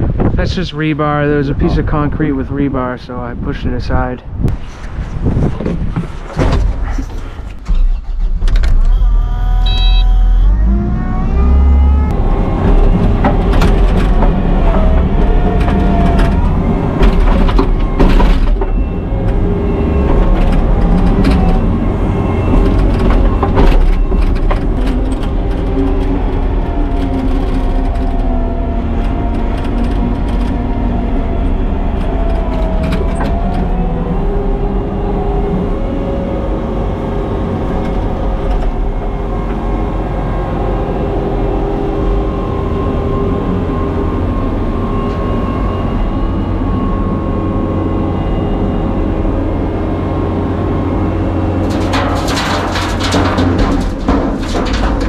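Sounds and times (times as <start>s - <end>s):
excavator engine under load: 4.8s - 55.0s
wavering hydraulic whine: 6.8s - 52.5s
rocks and dirt knocking: 51.6s - 55.0s.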